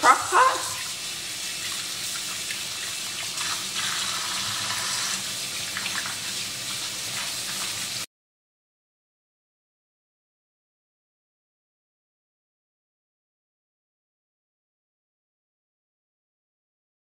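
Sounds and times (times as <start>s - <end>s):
potatoes being scrubbed: 0.0s - 8.0s
faucet running into metal sink: 0.0s - 8.1s.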